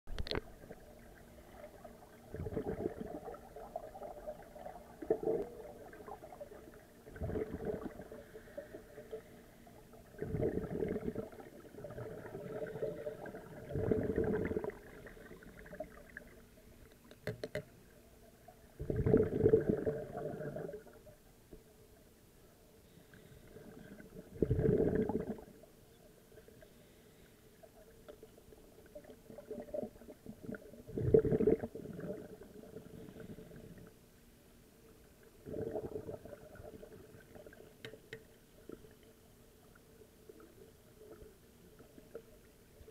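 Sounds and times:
underwater regulator bubbles: 0.1s - 9.2s, 9.9s - 17.7s, 18.8s - 21.1s, 23.2s - 25.6s, 28.8s - 33.8s, 35.4s - 38.0s.

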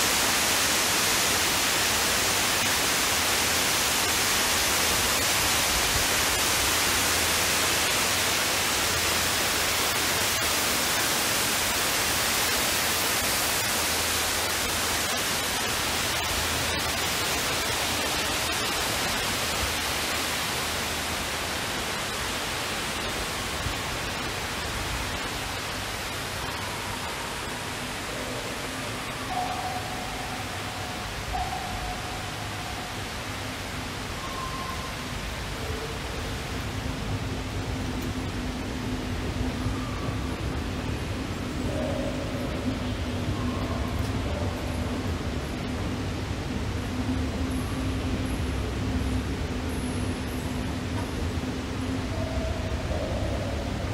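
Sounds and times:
indoor waterfall rushing: 0.0s - 53.9s.

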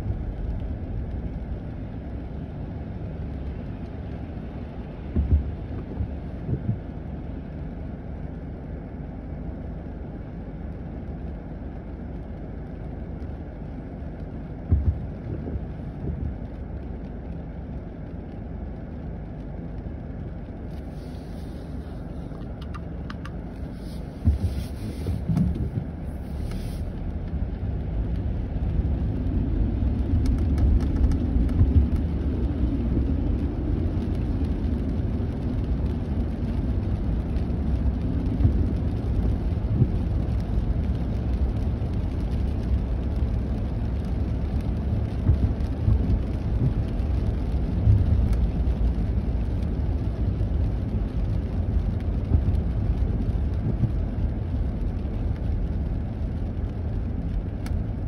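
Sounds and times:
car cabin rumble: 0.0s - 9.7s, 10.3s - 58.0s
road noise: 0.0s - 58.0s
short low thumps: 5.1s - 7.0s, 14.6s - 16.4s, 23.9s - 26.5s, 45.0s - 46.9s.

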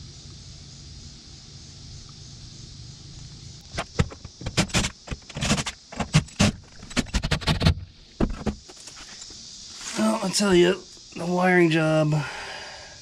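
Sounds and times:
steady high-pitched hiss: 0.0s - 13.0s.

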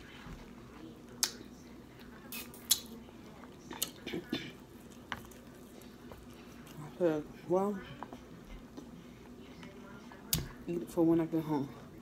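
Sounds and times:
wet squishes of noodles: 2.0s - 8.9s.

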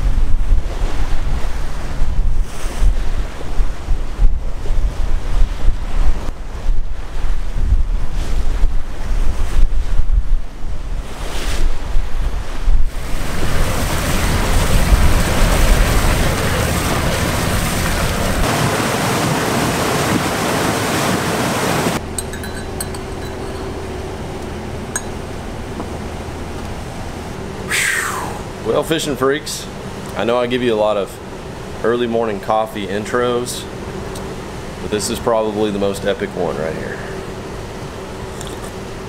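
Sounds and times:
wind buffeting microphone: 0.0s - 23.7s
steady hum: 0.0s - 39.0s
river water rushing along hull: 12.9s - 30.0s
spoon clinking coffee cup: 22.1s - 23.8s, 25.0s - 25.2s, 38.3s - 38.7s.

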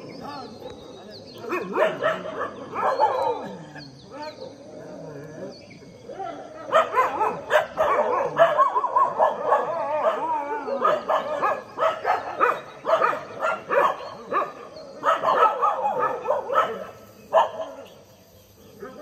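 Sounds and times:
dogs barking: 0.0s - 19.0s.

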